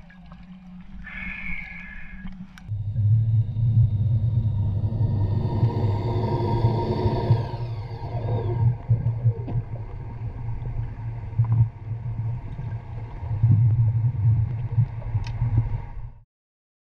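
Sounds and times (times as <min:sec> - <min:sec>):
underwater thrusters rumbling: 0:00.0 - 0:16.2
short falling whine: 0:01.0 - 0:10.9.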